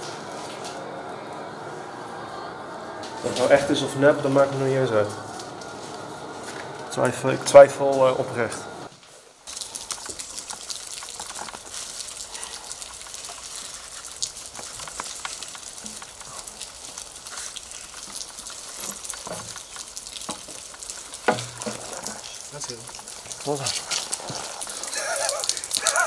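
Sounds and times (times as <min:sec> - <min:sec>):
crackling outdoor hiss: 0:03.3 - 0:26.0
small ticks and scuffs: 0:09.0 - 0:26.0.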